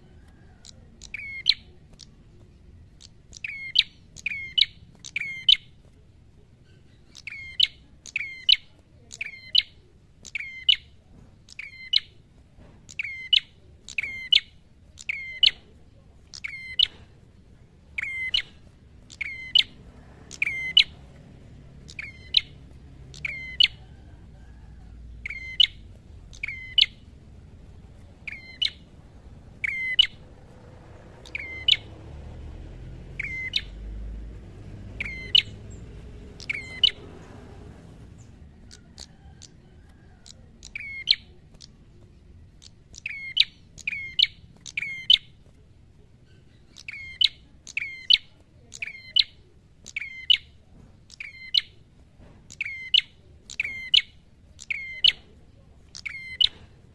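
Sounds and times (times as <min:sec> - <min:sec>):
bird double-noted calls: 0:18.0 - 0:20.9, 0:29.6 - 0:30.2.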